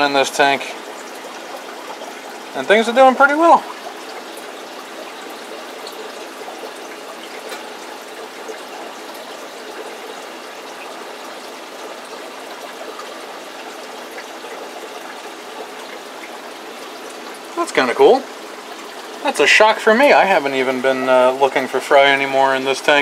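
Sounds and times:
faint ticks and drips: 0.0 - 23.0
water trickling in aquarium: 0.0 - 23.0.

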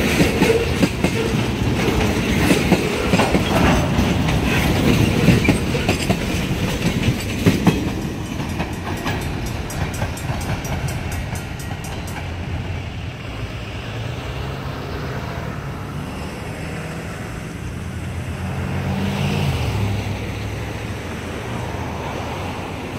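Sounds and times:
train wheels clicking over rail joints: 0.0 - 13.4
freight train rumble: 0.0 - 22.9.

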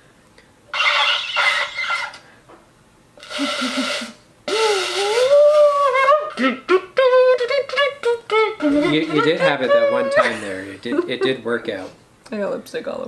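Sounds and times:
shofar sputtering toots: 0.7 - 2.2, 3.2 - 10.3
shofar note bending upward: 4.5 - 6.8.

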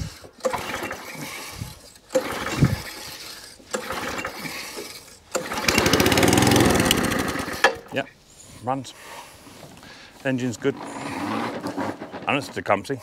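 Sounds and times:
recoil starter pulls: 0.0 - 7.9
mower engine running: 5.3 - 7.8.

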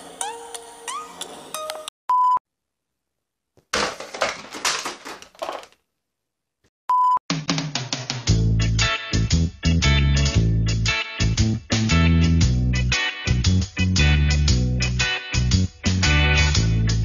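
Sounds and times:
short electronic beeps: 6.9 - 7.2.

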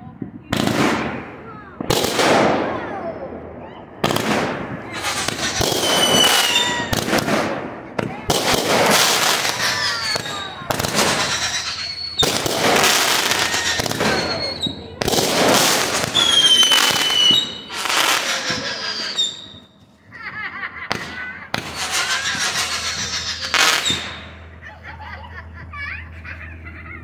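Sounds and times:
fireworks bursts and crackle: 0.0 - 25.6
fireworks falling whistles: 3.6 - 24.5.

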